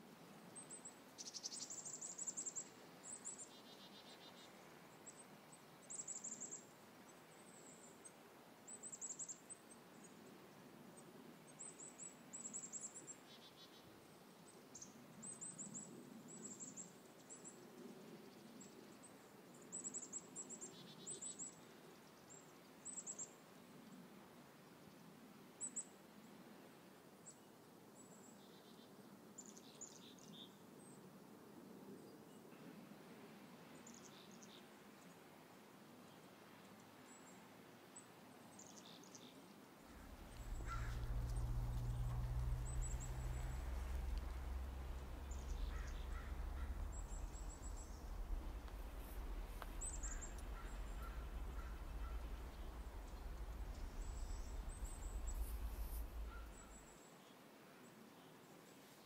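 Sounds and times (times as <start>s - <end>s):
faint low background hum: 39.8s - 57.0s
hummingbird scratchy buzz: 40.0s - 56.8s.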